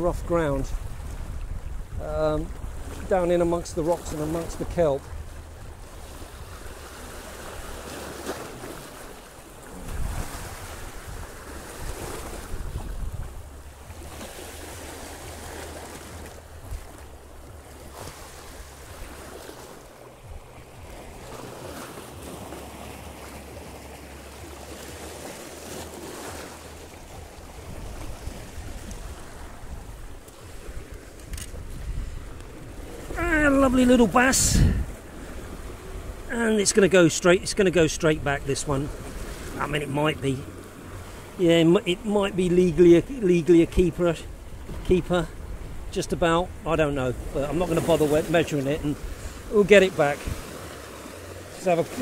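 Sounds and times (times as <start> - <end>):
wind rumbling on microphone: 0.0 - 36.3, 43.7 - 47.8, 48.7 - 51.5
waves splashing over rocks: 0.0 - 52.0.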